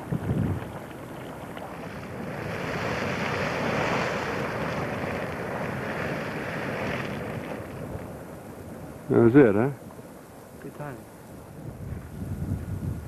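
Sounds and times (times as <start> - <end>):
geyser hissing steam and water: 0.0 - 13.0.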